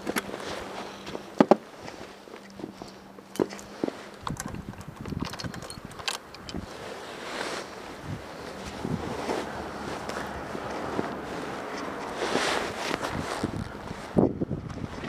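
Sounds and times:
rustling: 0:00.0 - 0:15.0
clicks and knocks: 0:03.3 - 0:06.7.

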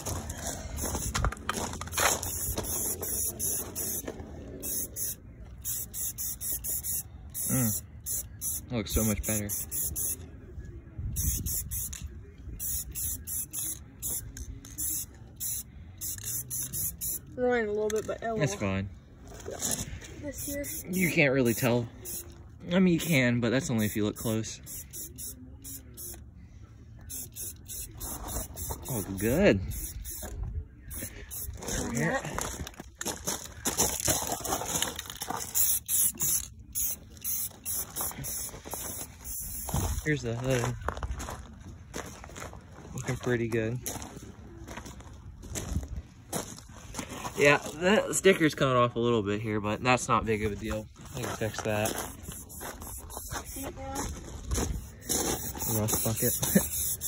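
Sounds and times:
spray paint can hissing: 0:00.8 - 0:10.2, 0:11.1 - 0:17.3, 0:20.4 - 0:22.3, 0:23.0 - 0:26.2, 0:27.1 - 0:30.3, 0:30.9 - 0:31.6, 0:35.4 - 0:39.9, 0:51.1 - 0:54.0, 0:54.8 - 0:57.0.

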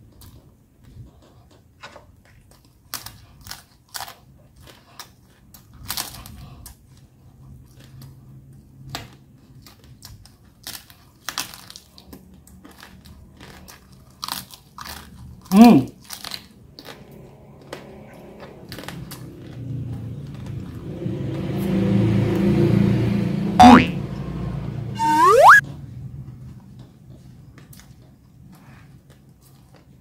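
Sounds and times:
chewing crispy pork skin: 0:00.0 - 0:20.7, 0:26.3 - 0:30.0.

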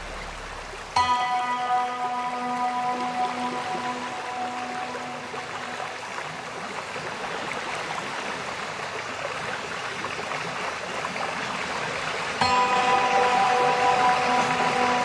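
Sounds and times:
background music: 0:00.0 - 0:06.2, 0:12.4 - 0:15.0
rushing water: 0:00.0 - 0:15.0.

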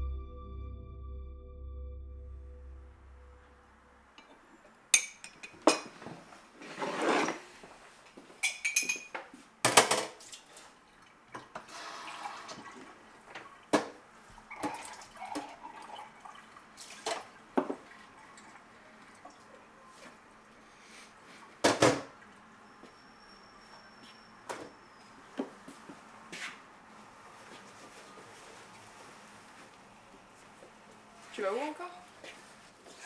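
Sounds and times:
crockery and cutlery clinking: 0:05.0 - 0:06.0, 0:08.4 - 0:09.3.

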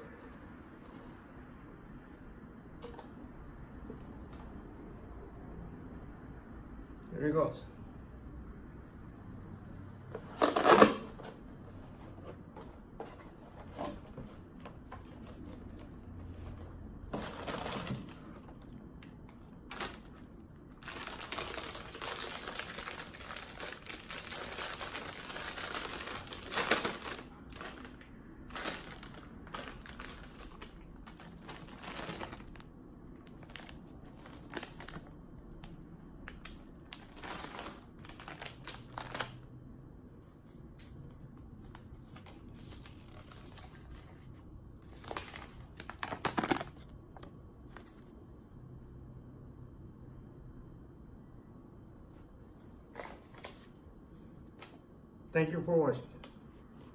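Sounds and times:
foil chip bag crinkling: 0:19.7 - 0:32.6, 0:33.2 - 0:35.1, 0:36.9 - 0:39.4.

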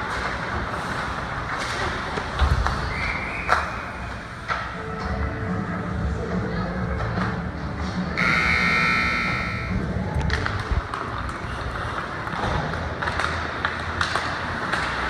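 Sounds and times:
hockey sticks or puck clacking: 0:00.0 - 0:05.2, 0:10.2 - 0:15.0
ice rink background noise: 0:00.0 - 0:15.0
scoreboard buzzer: 0:08.2 - 0:09.8.

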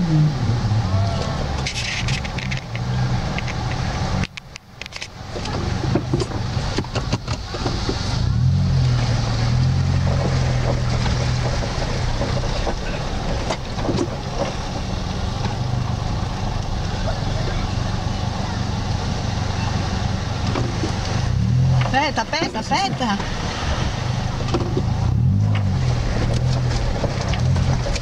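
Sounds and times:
car engine running under load: 0:00.0 - 0:28.0
water washing around vehicle: 0:00.0 - 0:28.0.

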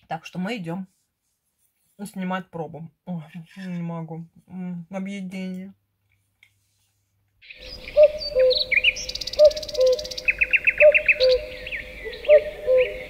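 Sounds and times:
songbirds chirping and trilling: 0:07.4 - 0:13.0.

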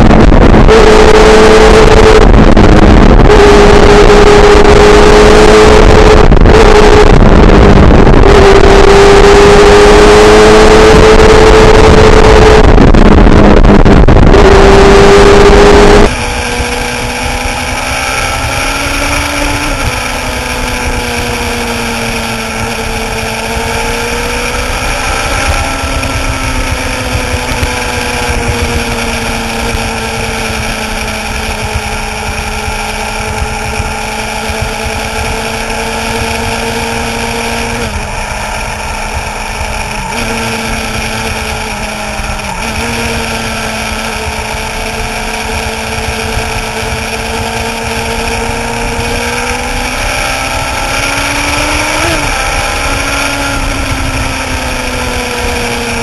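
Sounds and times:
heavy wind rush: 0:00.0 - 0:56.0
motorcycle engine cruising: 0:00.0 - 0:56.0.

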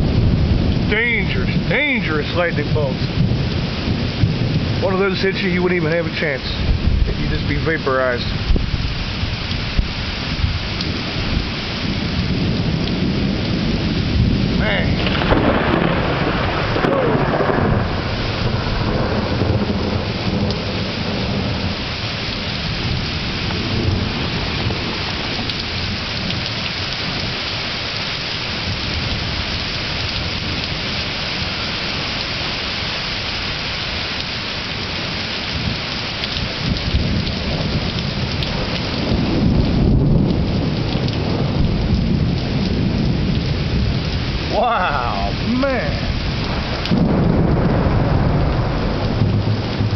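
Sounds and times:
rolling thunder: 0:00.0 - 0:27.7, 0:28.4 - 0:49.9
heavy rain falling: 0:00.0 - 0:49.9.

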